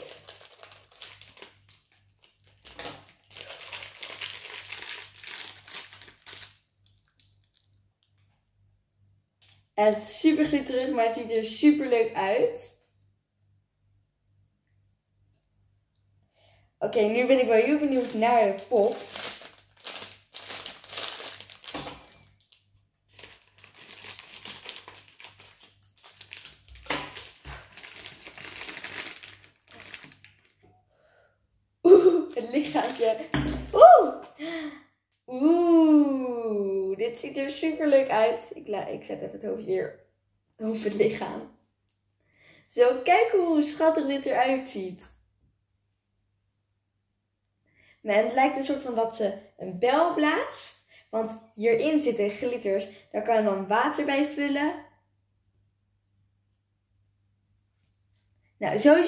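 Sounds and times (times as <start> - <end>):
plastic bag crinkling: 0.0 - 8.2, 17.3 - 30.7, 32.0 - 33.4.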